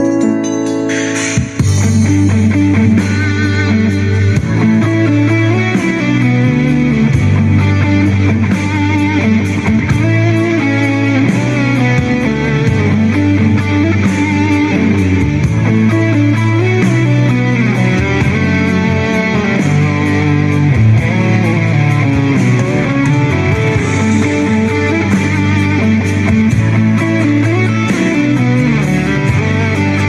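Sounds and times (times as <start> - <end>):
instrumental rock music: 0.0 - 30.0.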